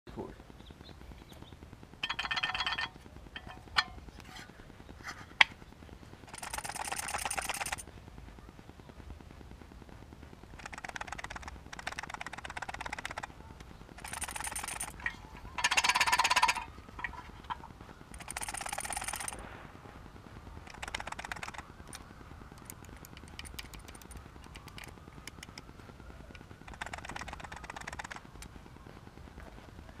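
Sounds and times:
crackling electrical buzz: 0.2 - 2.2, 2.8 - 30.0
sharp clicks: 6.2 - 7.9, 10.5 - 19.4, 20.6 - 28.6.

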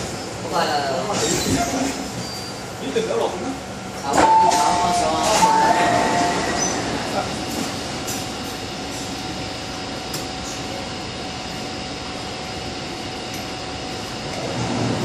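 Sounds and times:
air-conditioning hum: 0.0 - 15.0.

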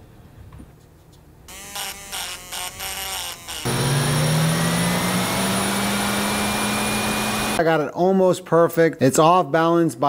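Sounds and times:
balancing machine spinning with whine: 3.7 - 7.6.

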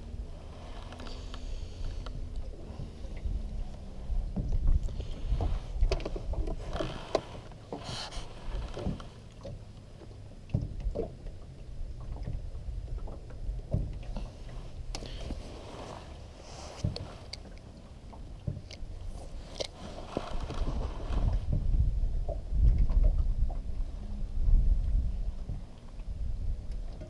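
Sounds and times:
wind rumble on microphone: 0.0 - 27.0
clothing brushing microphone: 6.6 - 9.0, 15.2 - 17.3.

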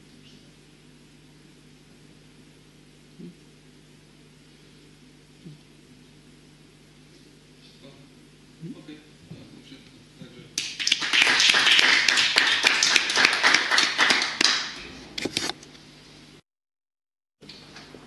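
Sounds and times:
audience applauding: 10.6 - 14.8.

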